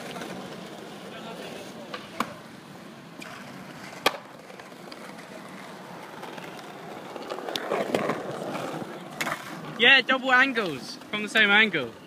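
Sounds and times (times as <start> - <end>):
skateboard wheels rolling on paving: 0.0 - 12.0
skateboard clacking on ledge: 3.9 - 5.3.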